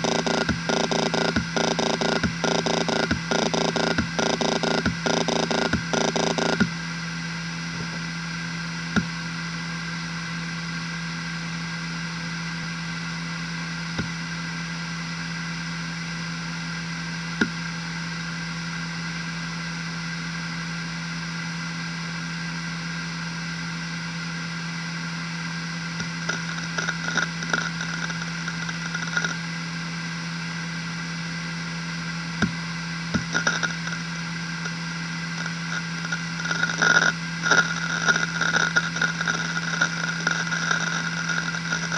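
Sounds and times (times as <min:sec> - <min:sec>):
hard drive seek clicks: 0:00.0 - 0:06.8, 0:13.8 - 0:14.3, 0:17.4 - 0:17.7, 0:26.0 - 0:29.5, 0:32.3 - 0:41.9
hard drive spinning whine: 0:00.0 - 0:41.9.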